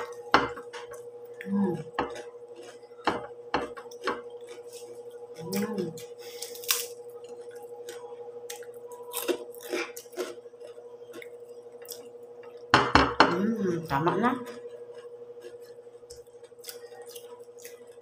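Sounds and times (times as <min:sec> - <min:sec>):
chewing: 0:00.7 - 0:03.0, 0:03.6 - 0:12.7, 0:14.5 - 0:18.0
pork rind crackling: 0:03.9 - 0:12.0.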